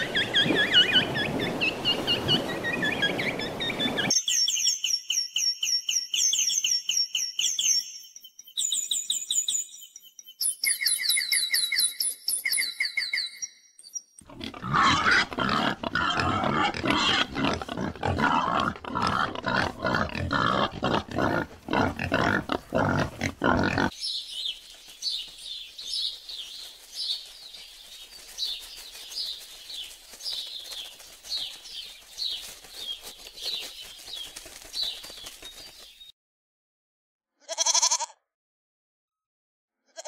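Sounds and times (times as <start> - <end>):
animal grunting: 14.2 - 23.9.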